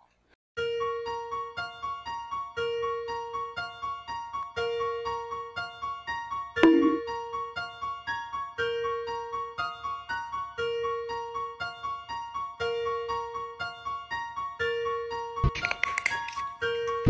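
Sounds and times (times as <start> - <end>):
light keyboard tune: 6.6 - 7.6.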